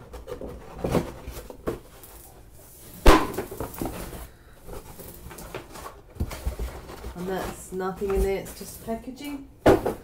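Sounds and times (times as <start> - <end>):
cardboard packaging scraping: 3.5 - 9.0.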